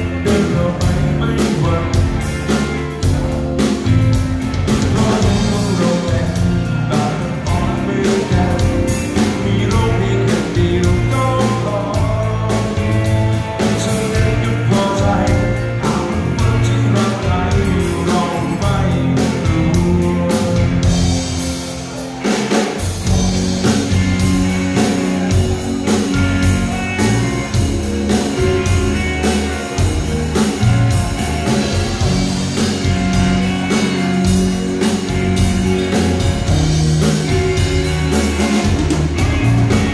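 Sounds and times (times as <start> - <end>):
man singing: 0.0 - 3.1, 4.5 - 21.4
bass guitar: 0.0 - 39.9
drum kit: 0.0 - 39.9
electric guitars: 0.0 - 39.9.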